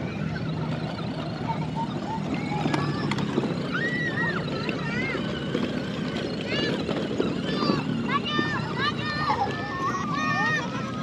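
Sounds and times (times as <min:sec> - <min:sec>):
electric toy motor humming: 0:00.0 - 0:11.0.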